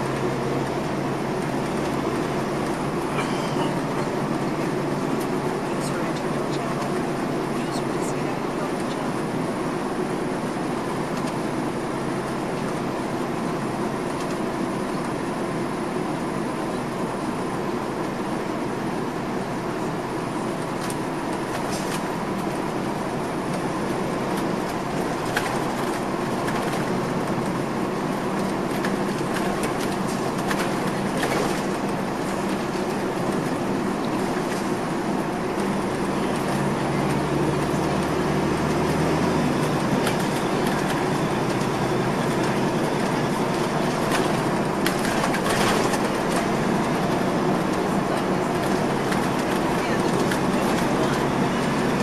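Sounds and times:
diesel coach engine running: 0.0 - 52.0
road noise: 0.0 - 52.0.

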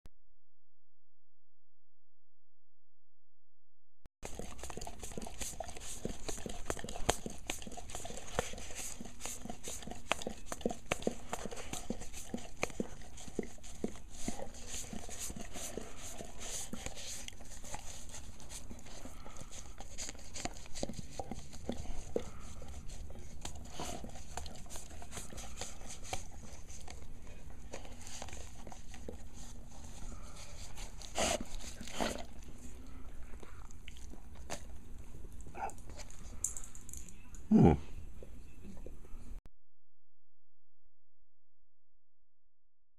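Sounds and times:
dog licking a paper cup: 4.2 - 36.4.

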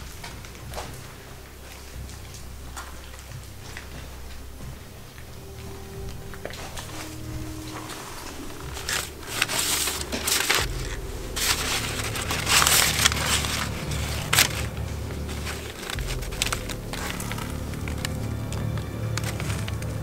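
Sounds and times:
paper rustling and crinkling: 5.2 - 20.0.

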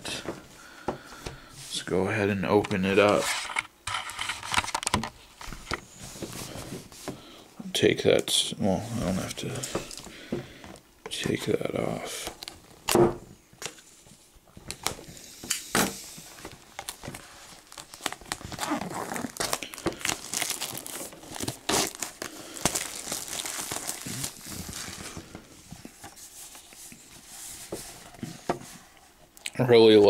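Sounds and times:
plastic wrap crinkling and tearing: 16.6 - 26.1.

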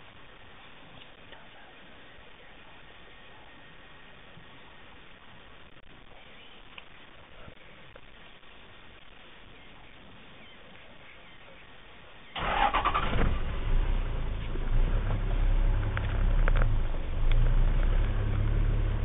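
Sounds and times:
vehicle engine cranking: 12.4 - 19.0
vehicle engine running: 12.4 - 19.0.

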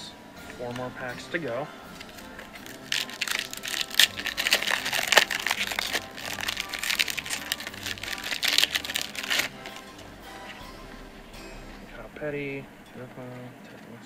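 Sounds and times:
foil wrapper crinkling: 2.0 - 10.6.

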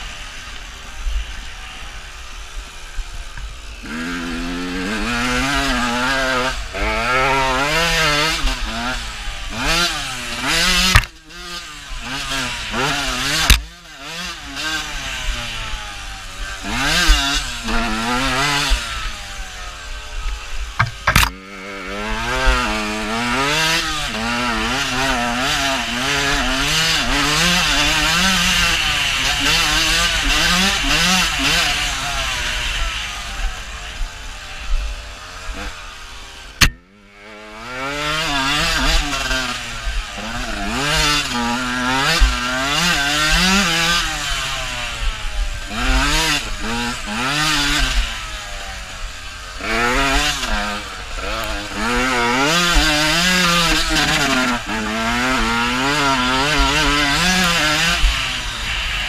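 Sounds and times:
dirt bike engine revving: 0.0 - 59.0
sharp knocks: 20.8 - 21.4, 36.6 - 36.8.

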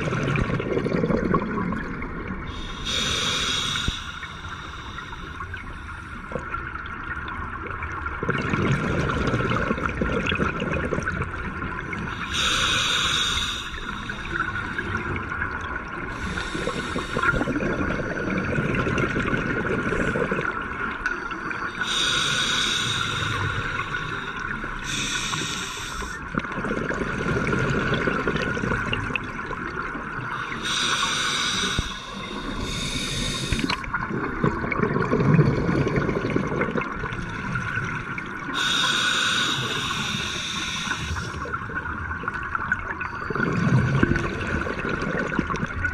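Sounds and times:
rumble of exhaled bubbles: 0.0 - 3.3, 5.5 - 12.5, 13.8 - 21.2, 26.0 - 30.8, 31.8 - 38.8, 39.8 - 45.9
hissing regulator inhalations: 2.5 - 6.3, 12.2 - 15.0, 16.1 - 17.6, 21.8 - 26.2, 30.3 - 33.9, 38.5 - 41.6.

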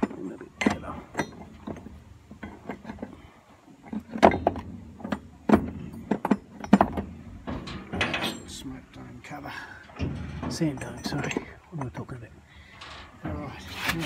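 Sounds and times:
metal castings knocking on wood: 0.0 - 3.2, 3.8 - 9.1.

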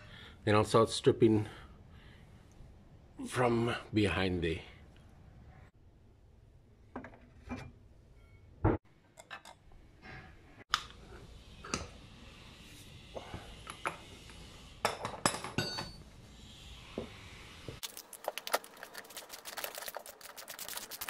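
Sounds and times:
metal tools clinking on concrete: 15.0 - 16.0.

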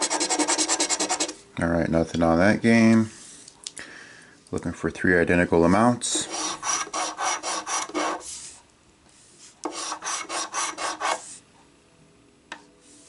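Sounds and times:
coin scratching lottery ticket: 0.0 - 1.4, 6.3 - 8.2, 9.7 - 11.2.

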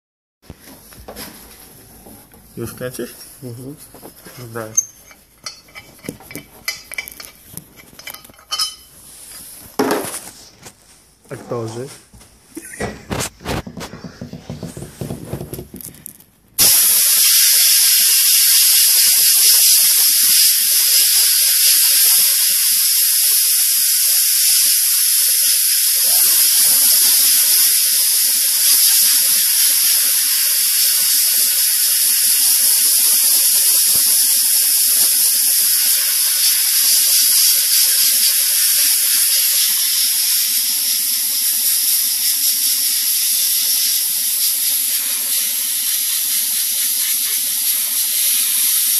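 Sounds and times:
sandblaster hissing: 16.6 - 48.9.

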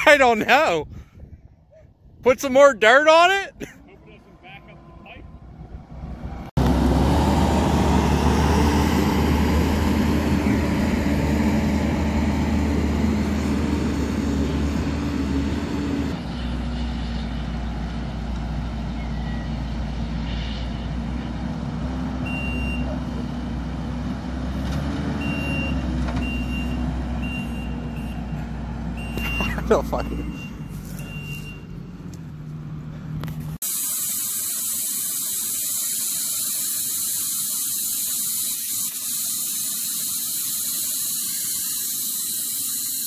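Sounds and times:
diesel engine running: 3.2 - 43.0
reversing alarm beeps: 22.2 - 22.9, 25.2 - 28.4, 29.0 - 31.7
rushing gas burning: 33.3 - 43.0.

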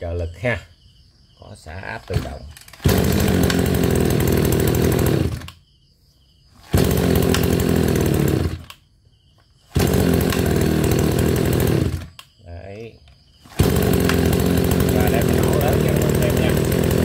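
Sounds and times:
brush cutter engine revving: 2.0 - 5.6, 6.6 - 8.8, 9.6 - 12.3, 13.4 - 17.0.

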